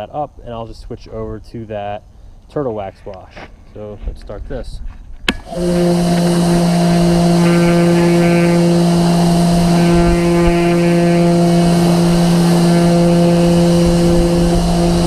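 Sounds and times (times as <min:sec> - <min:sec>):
pressure washer motor hum: 0:05.3 - 0:15.0
water spray hissing: 0:05.4 - 0:15.0.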